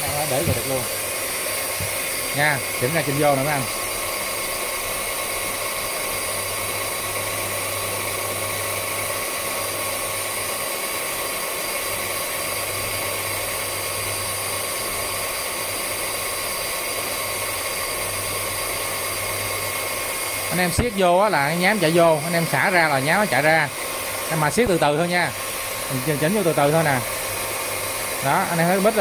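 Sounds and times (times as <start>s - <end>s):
belt sander motor whine: 0.0s - 29.0s.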